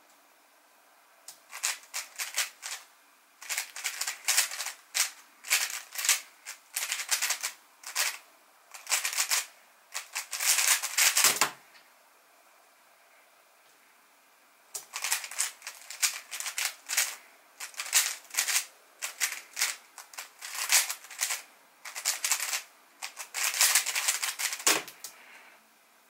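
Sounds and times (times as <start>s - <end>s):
plastic puzzle cube clicking: 3.4s - 11.5s, 14.8s - 25.1s.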